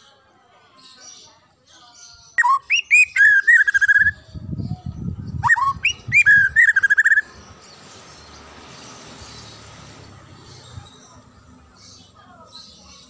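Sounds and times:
bird singing whistled phrases: 0:02.3 - 0:04.2, 0:05.3 - 0:07.3.

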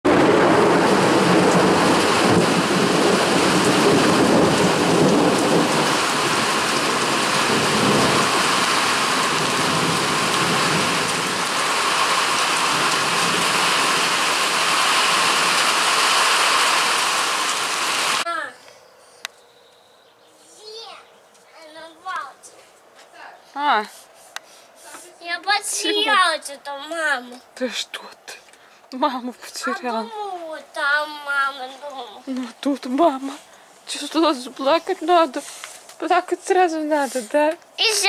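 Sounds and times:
heavy rain: 0:00.0 - 0:18.3, 0:29.6 - 0:35.7, 0:37.8 - 0:38.0
thunder rumbling: 0:00.1 - 0:18.2.

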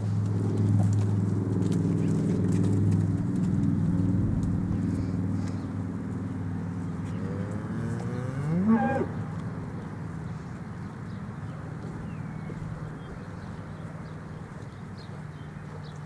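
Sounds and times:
low steady hum: 0:00.0 - 0:10.5
cow mooing: 0:07.2 - 0:09.2.

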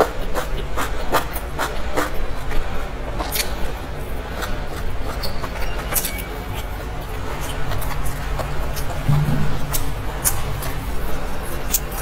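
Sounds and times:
low steady rumble: 0:09.0 - 0:11.4.

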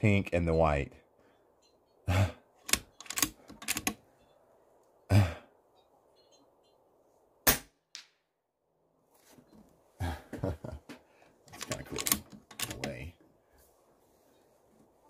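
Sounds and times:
air rifle clicks and clacks: 0:02.6 - 0:04.0, 0:11.5 - 0:13.0
air rifle shot: 0:07.4 - 0:08.0.

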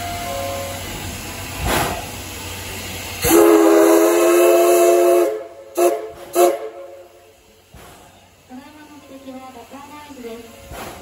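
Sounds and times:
steady steam hiss: 0:00.0 - 0:11.0
short sharp steam burst: 0:00.1 - 0:08.6
steam locomotive whistle: 0:03.2 - 0:07.2.

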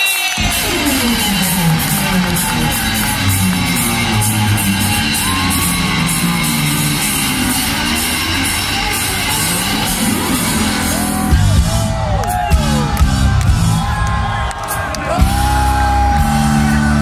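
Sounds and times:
electric guitar lead: 0:00.4 - 0:12.0
steady drum beat: 0:00.4 - 0:16.8
bass: 0:00.4 - 0:17.0.

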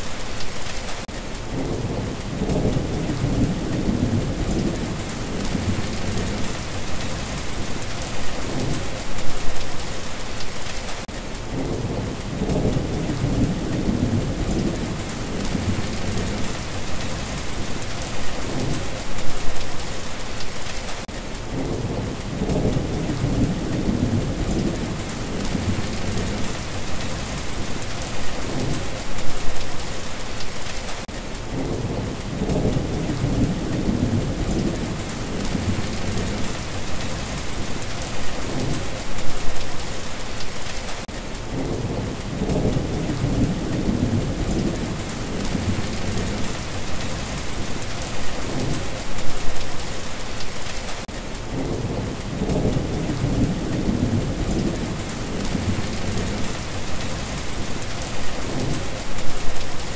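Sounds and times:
heavy rain: 0:00.0 - 0:59.9
low rolling thunder: 0:01.5 - 0:09.0, 0:11.5 - 0:19.1, 0:21.5 - 0:29.1, 0:31.5 - 0:39.0, 0:41.5 - 0:49.0, 0:51.5 - 0:59.6.

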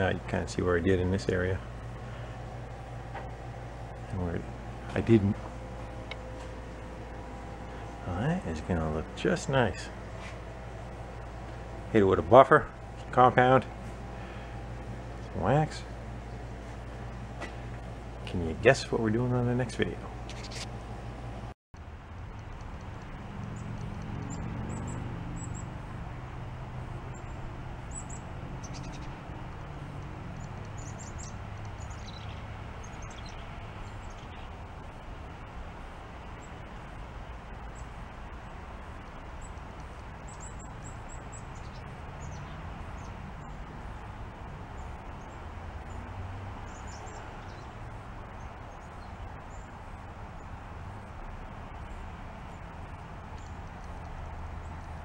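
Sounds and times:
steady low rumble: 0:00.0 - 0:55.0
small birds chirping: 0:20.1 - 0:20.8, 0:23.0 - 0:26.0, 0:26.7 - 0:55.0.

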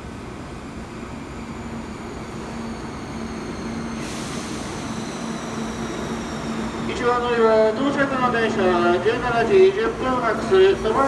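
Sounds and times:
train pulling into station: 0:00.0 - 0:11.0
high whines falling in pitch: 0:01.3 - 0:08.9
hiss: 0:03.9 - 0:06.7.

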